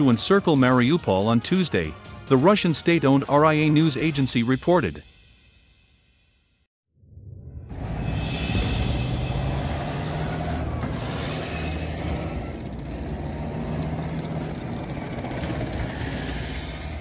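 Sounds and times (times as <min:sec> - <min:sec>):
tracked armoured vehicle driving past: 0:07.7 - 0:17.0.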